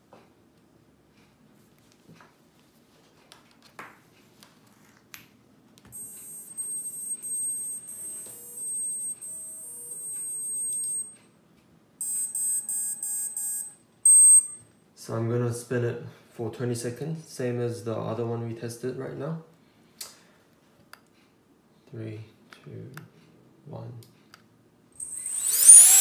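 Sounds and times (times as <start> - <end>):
drone motor stepped tones: 6.0 - 11.0, 25.0 - 26.0
short evenly spaced beeps: 6.0 - 11.2, 12.0 - 14.6, 25.0 - 26.0.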